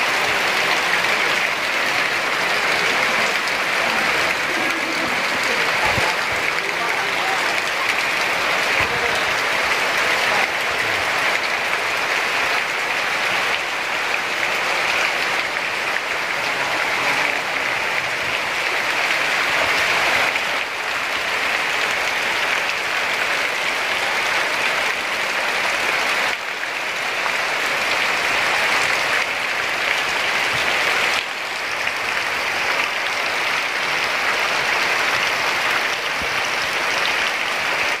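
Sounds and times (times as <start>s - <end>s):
heavy rain pouring: 0.0s - 38.0s.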